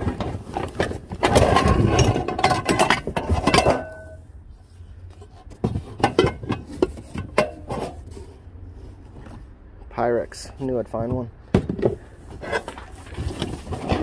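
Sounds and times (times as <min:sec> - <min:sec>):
metal pans clanking: 0:01.2 - 0:04.2.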